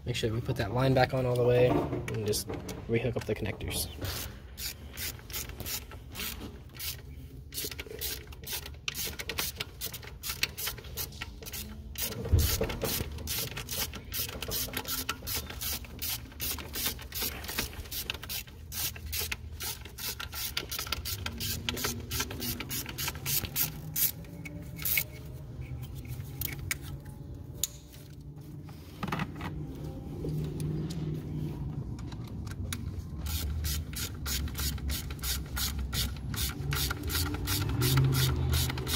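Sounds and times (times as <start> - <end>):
hand ratchet clicking: 4.1 - 24.2, 33.2 - 38.9.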